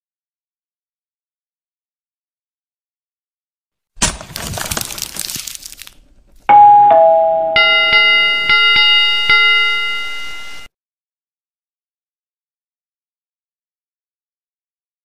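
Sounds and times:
ringing bell strikes: 0:06.5 - 0:10.7
two-note ding-dong chime: 0:06.5 - 0:10.7.

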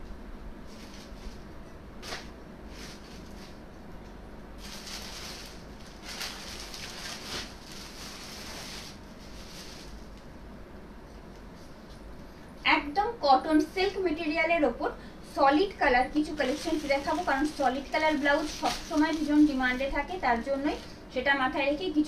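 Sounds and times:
garments rustling: 0:00.7 - 0:03.7, 0:04.6 - 0:10.2, 0:15.8 - 0:21.0.

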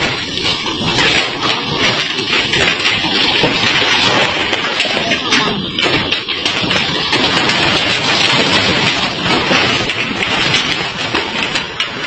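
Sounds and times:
heavy rain: 0:00.0 - 0:12.0.

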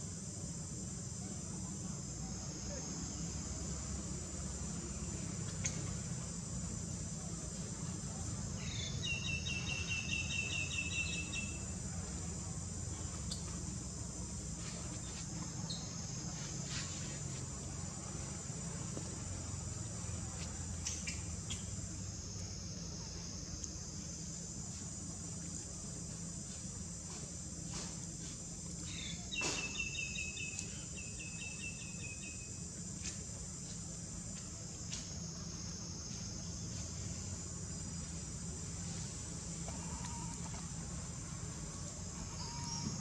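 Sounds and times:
insects droning: 0:00.0 - 0:43.0
short rapid insect trill: 0:00.0 - 0:43.0.

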